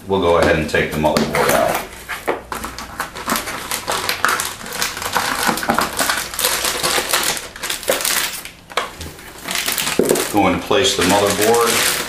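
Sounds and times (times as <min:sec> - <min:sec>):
cardboard rustling: 0:01.0 - 0:12.0
anti-static bag crinkling: 0:02.5 - 0:12.0.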